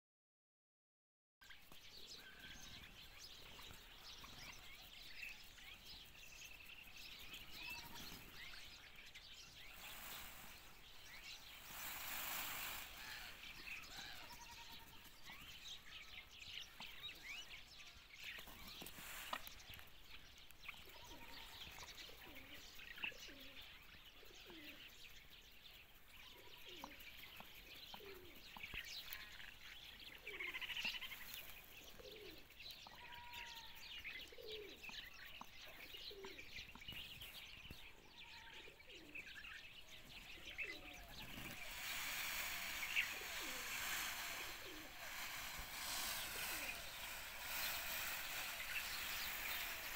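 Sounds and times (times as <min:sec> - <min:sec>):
small birds chirping: 0:01.4 - 0:49.9
pigeons cooing: 0:21.0 - 0:24.9, 0:26.4 - 0:27.1, 0:27.7 - 0:28.7, 0:30.0 - 0:33.0, 0:34.2 - 0:35.0, 0:35.6 - 0:36.8, 0:38.6 - 0:39.4, 0:40.0 - 0:49.9.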